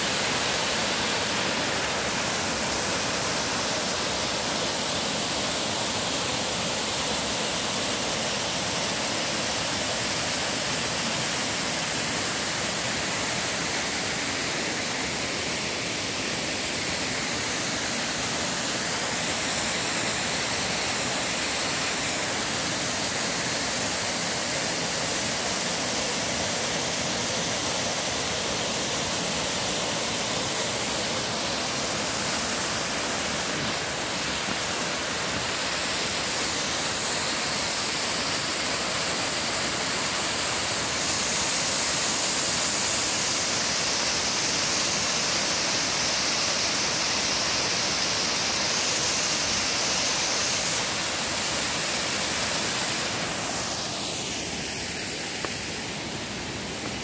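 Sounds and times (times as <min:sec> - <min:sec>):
water rushing over rocks: 0:00.0 - 0:57.0.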